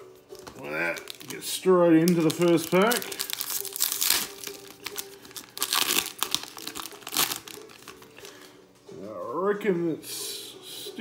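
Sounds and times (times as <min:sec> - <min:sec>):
foil wrapper crinkling: 0:00.3 - 0:08.5
foil wrapper tearing: 0:00.4 - 0:08.3.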